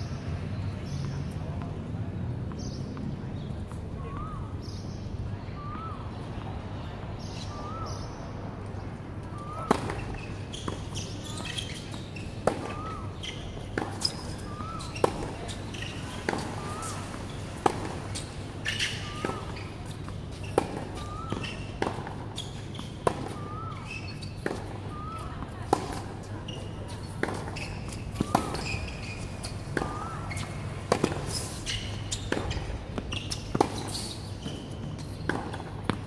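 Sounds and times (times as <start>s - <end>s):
tennis ball bouncing on court: 9.3s - 36.0s
tennis racket hitting ball: 27.1s - 34.1s, 35.1s - 36.0s.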